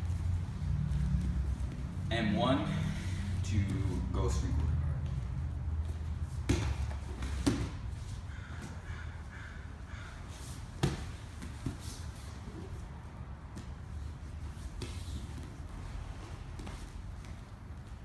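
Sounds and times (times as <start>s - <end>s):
bodies scuffling on mats: 10.3s - 12.9s, 13.5s - 18.0s.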